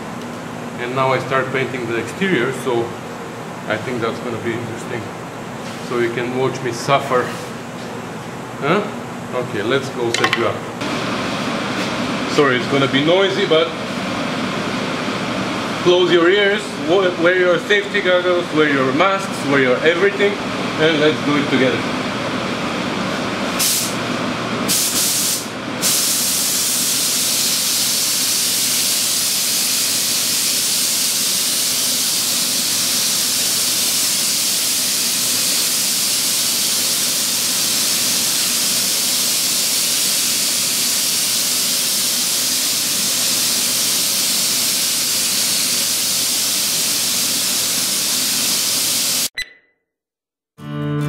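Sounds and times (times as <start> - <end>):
spray gun air hissing: 23.6 - 24.0, 24.7 - 49.3.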